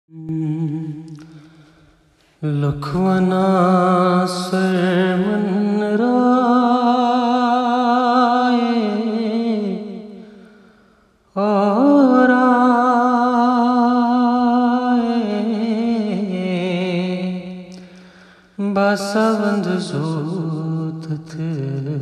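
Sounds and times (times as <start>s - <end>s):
person singing long wavering notes: 0.1s - 1.3s.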